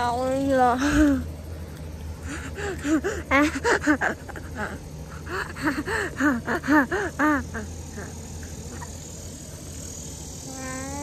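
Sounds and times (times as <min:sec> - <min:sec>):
young child giggling: 0:02.9 - 0:04.8.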